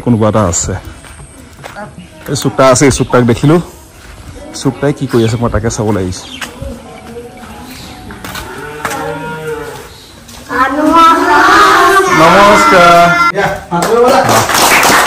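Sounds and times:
children calling out in chorus: 0:08.4 - 0:13.4.

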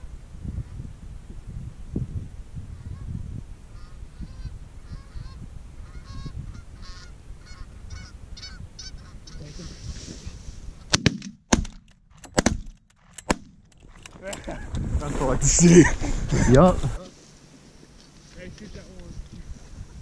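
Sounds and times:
geese honking: 0:03.8 - 0:09.8
shotgun shots: 0:10.9 - 0:13.6.

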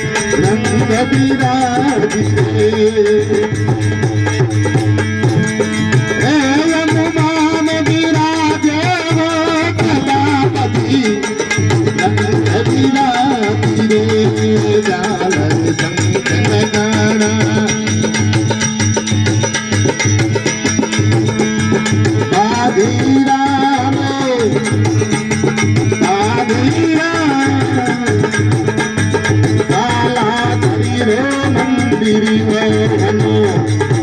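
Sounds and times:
person singing: 0:00.0 - 0:03.8, 0:06.2 - 0:18.3, 0:22.2 - 0:24.8, 0:25.9 - 0:28.8, 0:29.6 - 0:34.0
hand drum beat: 0:00.0 - 0:34.0
harmonium drone and melody: 0:00.0 - 0:34.0.

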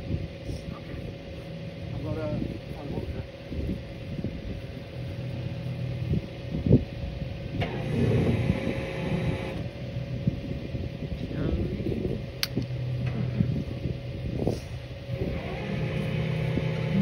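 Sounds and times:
engine idling: 0:04.8 - 0:17.0
sharp click: 0:12.4 - 0:12.7.

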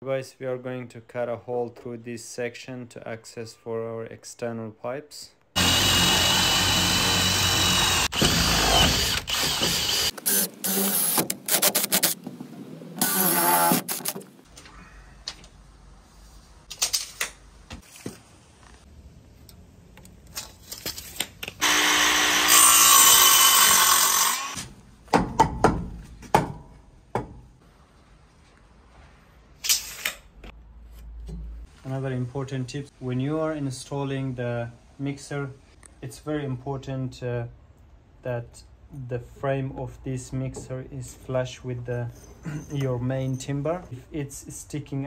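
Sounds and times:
cordless drill boring through wood: 0:05.6 - 0:12.2, 0:13.0 - 0:14.2, 0:21.6 - 0:24.6
mitre saw cutting timber: 0:05.6 - 0:12.2, 0:13.0 - 0:14.2, 0:21.6 - 0:24.6.

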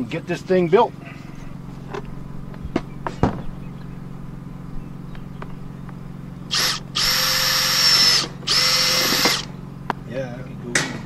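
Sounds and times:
cordless drill spinning: 0:06.5 - 0:09.5.

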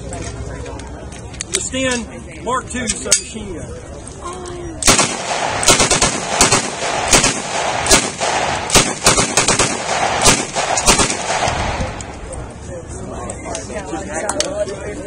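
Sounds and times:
submachine gun firing blanks: 0:04.8 - 0:12.0.

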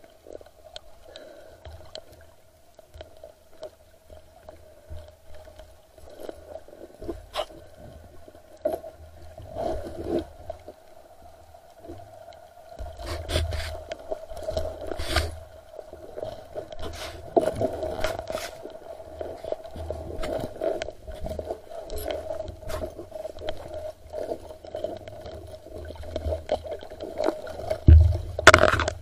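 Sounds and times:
faint steady hum: 0:00.0 - 0:29.0
low water rumbles: 0:00.0 - 0:29.0
muffled underwater knocks and scrapes: 0:07.0 - 0:08.0, 0:12.8 - 0:15.5, 0:16.7 - 0:18.7, 0:19.3 - 0:26.6, 0:27.2 - 0:29.0.

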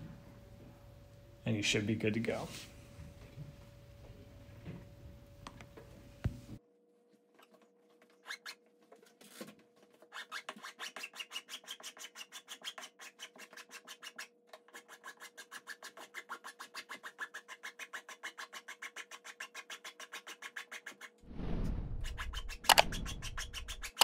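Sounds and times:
metal file rasping: 0:10.2 - 0:21.1.

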